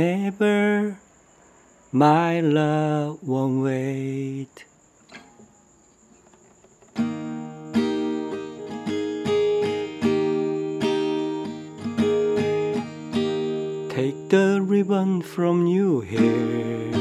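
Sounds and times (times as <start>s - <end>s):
acoustic guitar picked notes: 3.8s - 5.7s, 6.6s - 17.0s.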